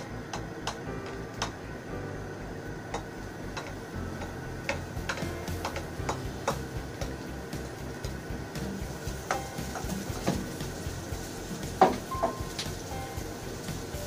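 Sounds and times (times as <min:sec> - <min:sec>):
metal spatula tapping a pan: 0:02.9 - 0:07.2.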